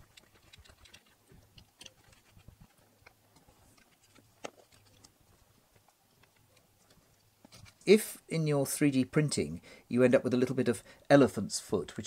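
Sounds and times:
plastic parts clicking and tapping: 0:00.0 - 0:07.8.

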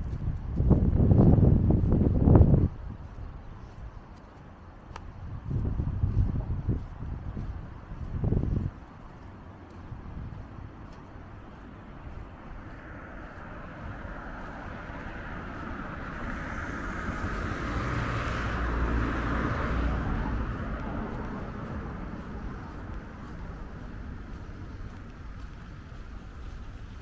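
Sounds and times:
car driving past: 0:12.3 - 0:27.0.

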